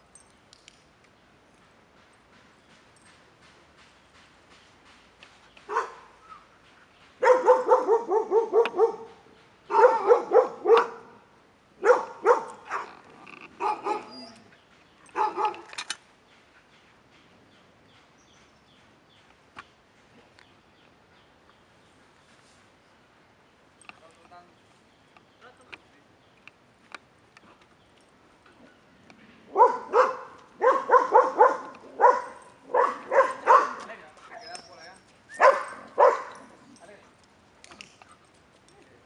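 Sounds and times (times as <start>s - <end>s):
dog barking: 5.7s - 6.1s, 7.2s - 11.2s, 11.8s - 13.0s, 13.6s - 14.1s, 15.1s - 15.7s, 29.5s - 33.9s, 35.4s - 36.5s.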